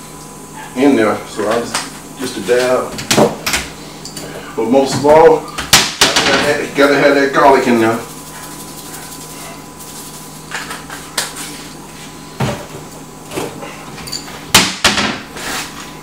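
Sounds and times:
kitchen knocks and clatters: 2.6 - 6.6, 12.4 - 15.3
cabinet door opening and shutting: 14.5 - 15.3.

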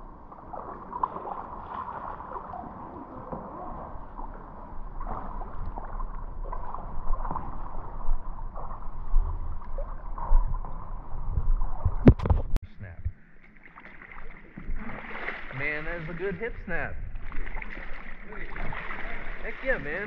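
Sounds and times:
pool water sloshing: 0.0 - 12.4, 13.1 - 20.0
small splashes: 0.3 - 11.1, 13.5 - 16.5, 17.1 - 20.0
water knocking against microphone: 5.0 - 13.2.

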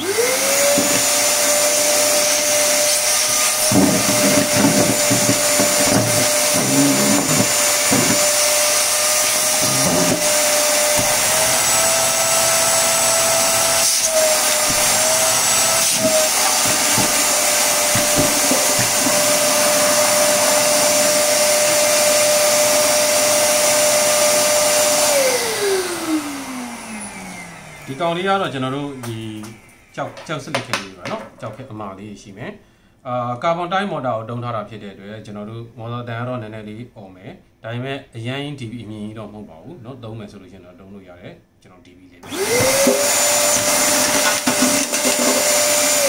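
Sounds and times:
vacuum cleaner motor whine: 0.0 - 30.4, 42.2 - 46.0.

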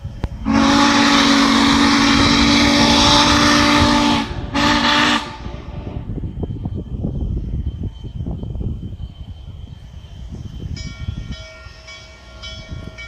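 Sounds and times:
steam locomotive whistle: 0.3 - 6.1.

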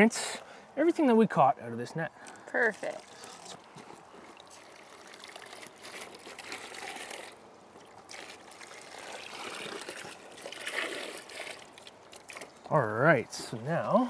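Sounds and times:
water trickling through net: 2.6 - 12.8.

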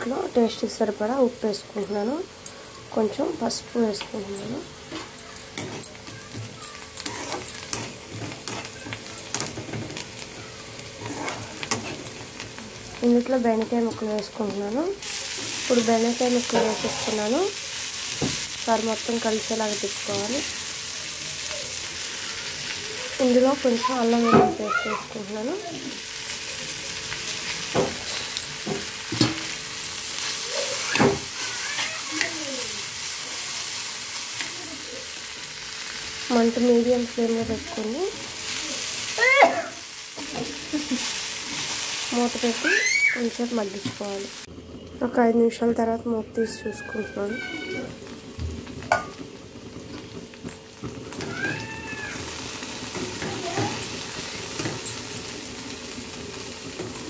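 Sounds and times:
onions sizzling: 0.0 - 57.0
metal spatula scraping pan: 4.2 - 10.0, 11.0 - 12.2, 15.5 - 17.4.

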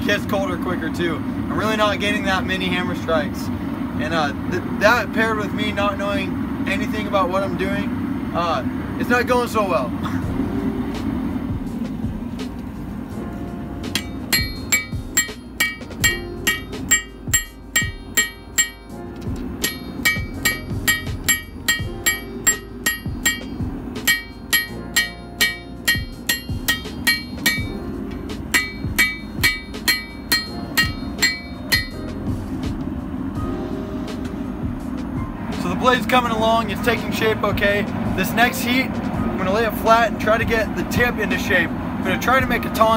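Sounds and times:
hammer striking hot metal on anvil: 13.9 - 19.0, 19.6 - 27.8, 28.4 - 32.2.

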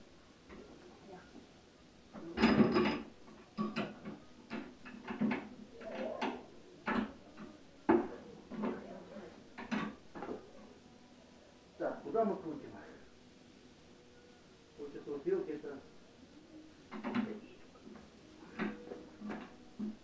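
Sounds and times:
metal clanks and knocks: 2.2 - 8.8.

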